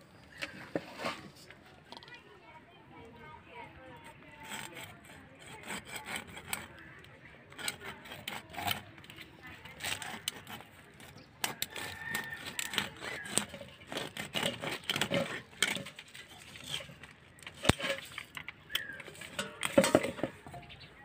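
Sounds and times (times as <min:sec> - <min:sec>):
fish being cut up: 0:07.5 - 0:19.7.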